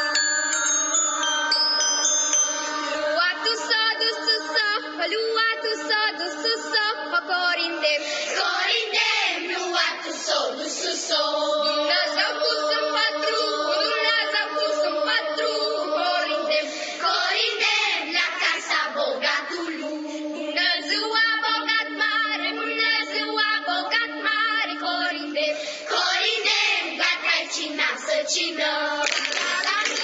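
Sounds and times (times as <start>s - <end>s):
children's choir singing: 0.0s - 30.0s
hand claps: 29.0s - 30.0s.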